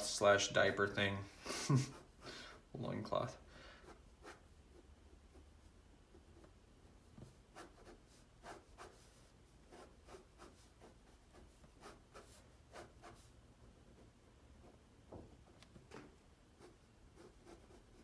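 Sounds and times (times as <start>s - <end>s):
ballpoint pen scratching paper: 7.2s - 13.3s, 16.6s - 18.0s.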